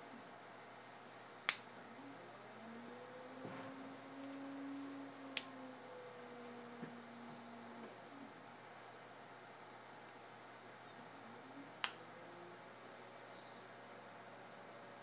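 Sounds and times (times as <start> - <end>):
pottery wheel motor humming: 0.0 - 15.0.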